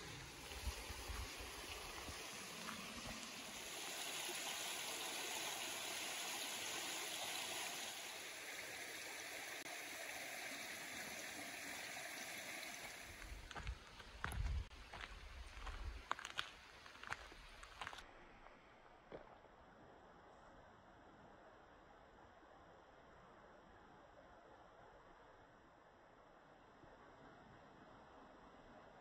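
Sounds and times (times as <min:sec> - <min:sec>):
forest stream flowing: 0:00.0 - 0:18.1.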